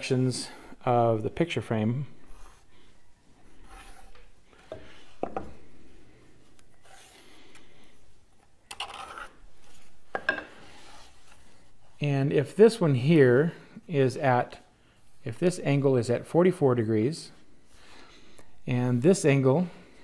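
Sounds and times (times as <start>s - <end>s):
pencil scratching on plywood: 2.1s - 2.8s, 3.4s - 4.8s.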